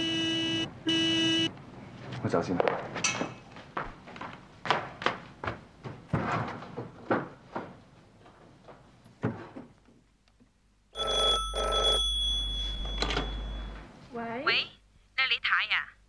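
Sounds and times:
footsteps on hard floor: 2.1s - 9.5s
telephone ringing: 11.0s - 13.9s.

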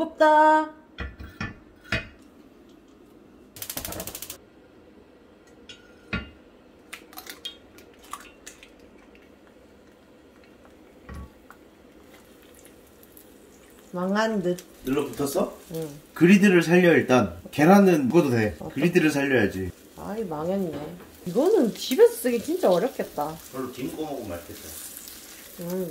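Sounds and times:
eggs cracked onto griddle: 6.9s - 9.3s
griddle knocking on hob: 20.5s - 21.2s.

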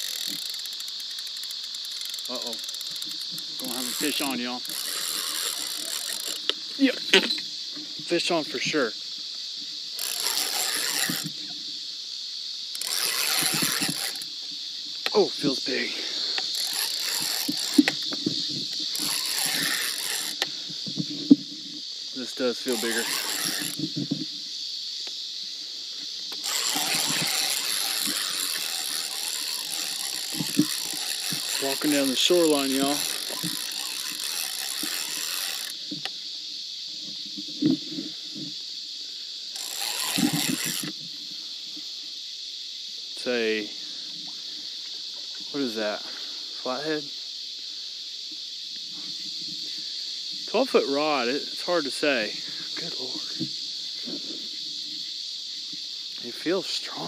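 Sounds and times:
fishing reel cranking: 0.0s - 7.5s, 9.9s - 11.6s, 12.7s - 14.4s, 15.0s - 20.6s, 22.2s - 24.0s, 26.3s - 35.9s, 39.5s - 41.0s
reel and rod clicks: 0.0s - 21.6s, 22.3s - 24.4s, 26.0s - 36.2s, 39.5s - 41.8s
night insects chorus: 0.0s - 57.0s.

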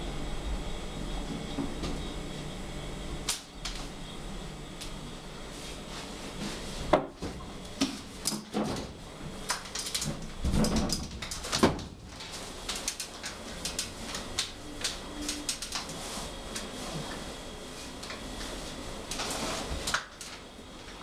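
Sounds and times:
paper rustling and ticking: 10.9s - 16.7s.

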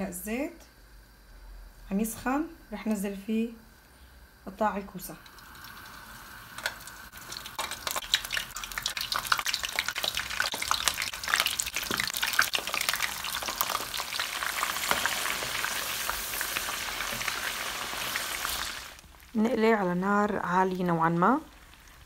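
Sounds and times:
food sizzling in hot oil: 4.7s - 22.0s
oil crackling and spattering: 5.2s - 19.4s.

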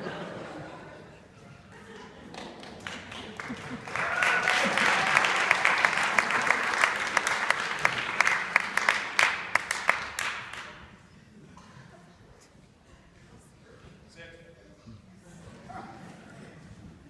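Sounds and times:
audience applause: 1.9s - 10.8s
close sharp claps: 2.3s - 10.9s.

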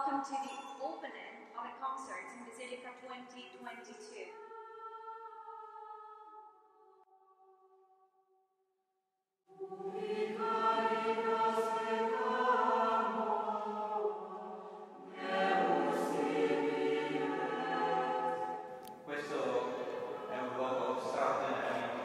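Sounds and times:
youth choir singing: 4.2s - 6.4s, 9.5s - 22.0s.

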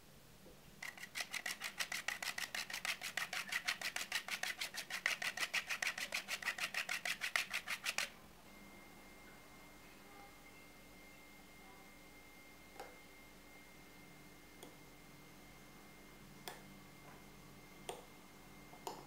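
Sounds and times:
chocolate grated on grater: 0.8s - 8.1s.

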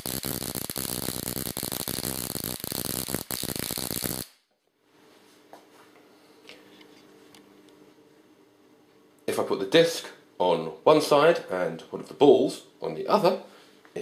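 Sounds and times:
induction coil spark crackling: 0.0s - 4.4s.

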